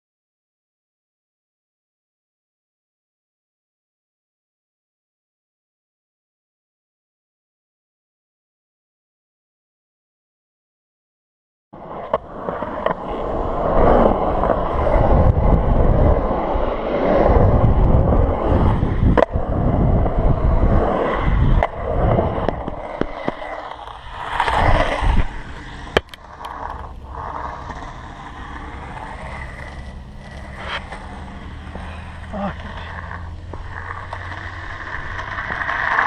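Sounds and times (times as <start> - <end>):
skateboard clacks: 11.8 - 36.0
skateboard wheels rolling on concrete: 11.8 - 36.0.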